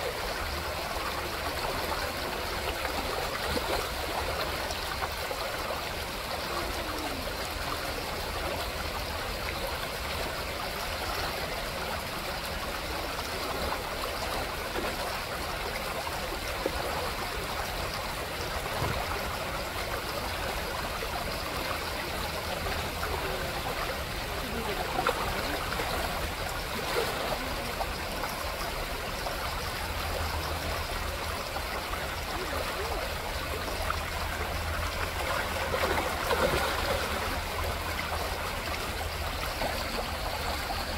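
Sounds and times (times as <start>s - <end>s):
creek running over stones: 0.0s - 40.9s.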